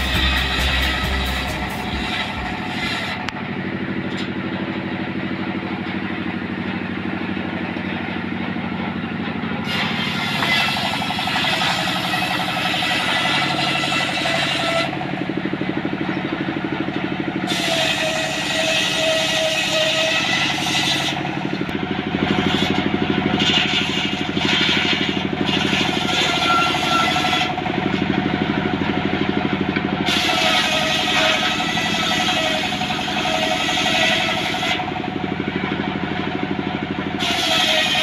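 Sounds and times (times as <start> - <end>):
background music: 0.0 - 2.6
saw blade ripping timber: 0.0 - 3.4, 9.6 - 15.2, 17.4 - 28.1, 30.0 - 35.0, 37.2 - 38.0
sawmill engine running: 0.0 - 38.0.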